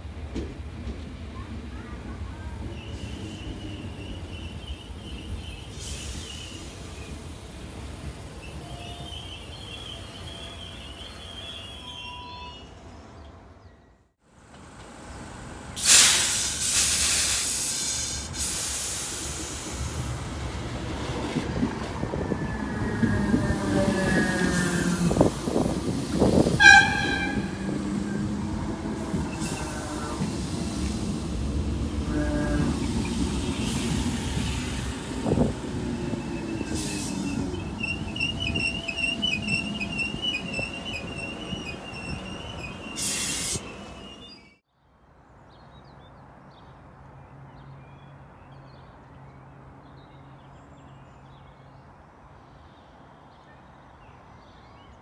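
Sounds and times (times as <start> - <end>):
train rolling and motor whine: 12.6 - 44.6
train horn toot: 26.6 - 27.8, 32.0 - 32.9
train wheel squeal: 36.0 - 44.6.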